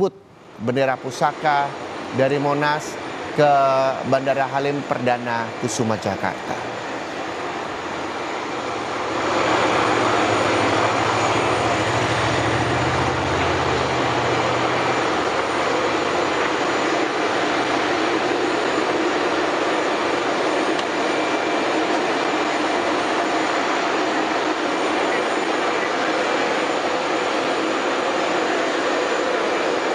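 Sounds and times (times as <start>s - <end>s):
aircraft engines running: 0.0s - 29.9s
low hum: 6.7s - 29.9s.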